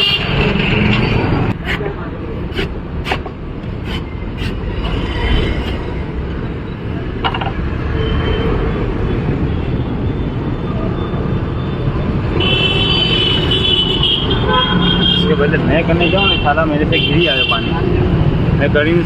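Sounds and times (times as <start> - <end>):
street traffic rumbling: 0.0 - 19.0
vehicle horn: 12.4 - 15.4.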